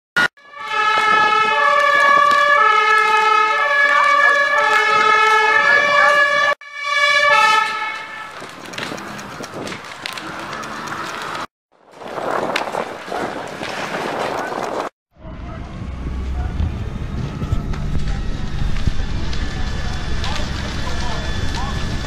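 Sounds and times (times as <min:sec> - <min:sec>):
two-tone emergency siren: 0:00.2 - 0:11.5, 0:15.2 - 0:22.0
noisy background: 0:15.2 - 0:22.0.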